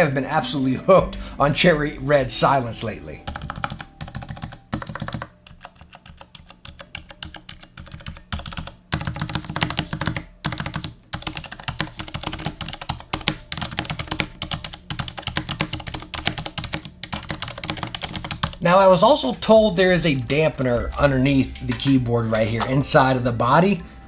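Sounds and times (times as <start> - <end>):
mechanical keyboard typing: 3.2 - 18.6.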